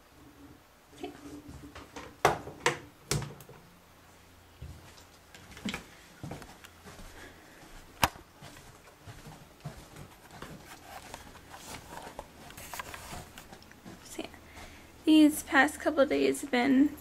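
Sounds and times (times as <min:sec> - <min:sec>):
soft footsteps on carpet: 0:04.6 - 0:15.7
camera handling rustling: 0:08.0 - 0:08.2, 0:10.7 - 0:13.5.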